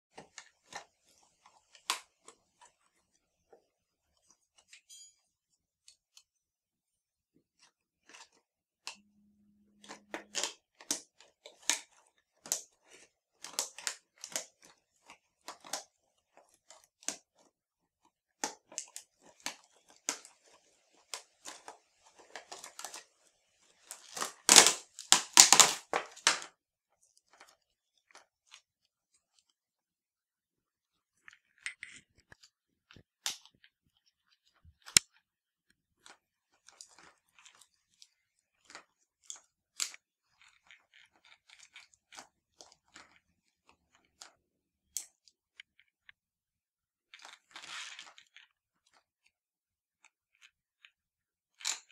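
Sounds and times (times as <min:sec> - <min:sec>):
plastic packaging crinkling: 0:19.2 - 0:26.5.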